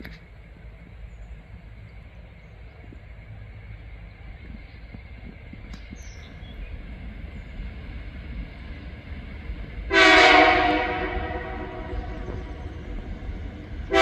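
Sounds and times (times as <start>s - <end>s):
locomotive horn blast: 9.9s - 12.4s.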